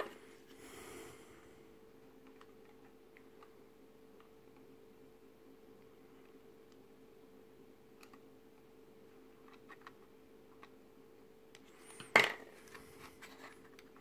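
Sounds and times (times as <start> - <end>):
steady hum: 0.0 - 9.4.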